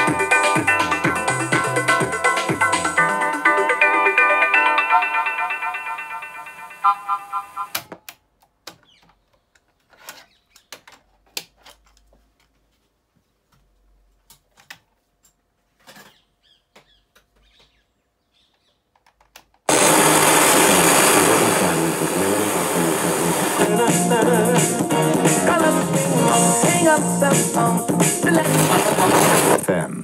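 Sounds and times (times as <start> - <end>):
loud music through speakers: 0.0 - 5.0, 19.7 - 29.7.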